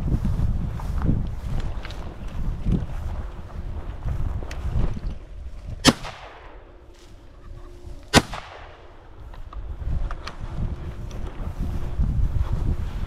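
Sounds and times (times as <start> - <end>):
wind rumbling on microphone: 0.0 - 13.0
shotgun shots with echo: 5.8 - 6.6, 8.1 - 8.9.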